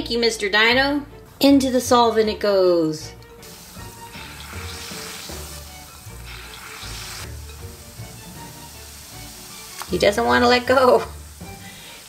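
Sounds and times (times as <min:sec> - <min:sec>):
soft background music: 0:00.0 - 0:12.0
tablet fizzing in water: 0:03.4 - 0:12.0.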